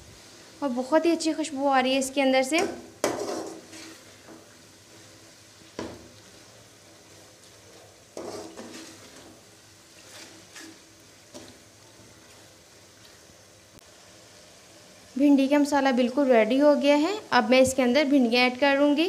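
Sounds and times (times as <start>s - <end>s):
masala sizzling faintly: 0.0s - 19.0s
metal spoon scraping pot: 8.2s - 9.1s.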